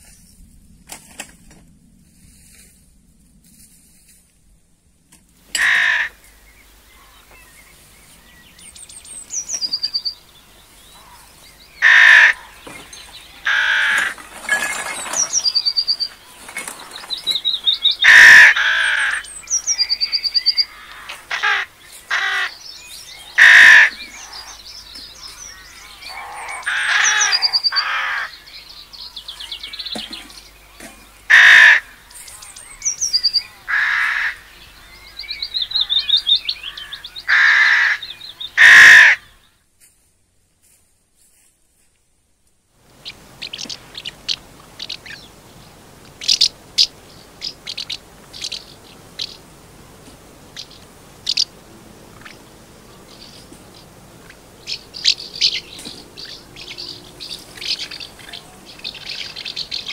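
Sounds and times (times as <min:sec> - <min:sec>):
harsh cawing bird calls: 0:05.5 - 0:07.4, 0:09.3 - 0:39.6, 0:50.5 - 0:52.4, 0:54.2 - 0:59.9
songbird high trill: 0:06.9 - 0:28.6.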